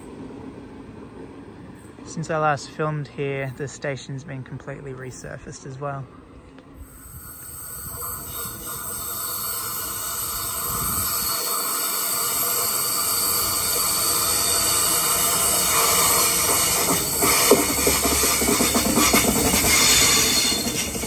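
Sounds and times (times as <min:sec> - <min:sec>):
electric train approaching: 0:00.0 - 0:21.0
wheels hissing on curved rail: 0:06.7 - 0:21.0.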